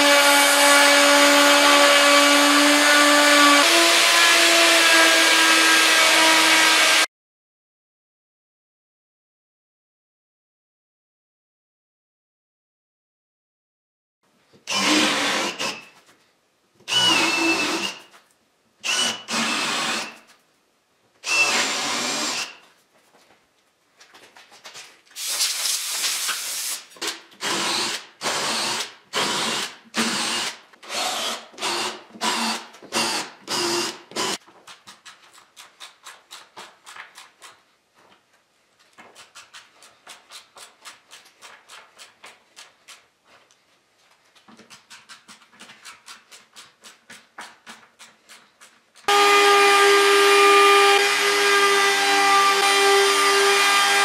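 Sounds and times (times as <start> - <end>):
cordless drill boring into wood: 14.7 - 15.9, 16.9 - 18.0, 18.8 - 20.2, 21.2 - 22.6, 27.4 - 34.4, 49.1 - 54.0.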